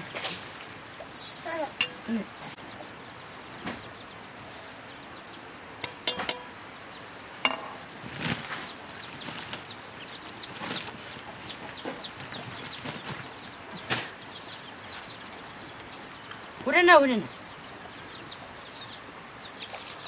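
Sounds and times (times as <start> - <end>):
chickens clucking: 0.0 - 20.0
metal pots clinking: 1.2 - 2.2, 5.2 - 6.6, 7.4 - 7.8.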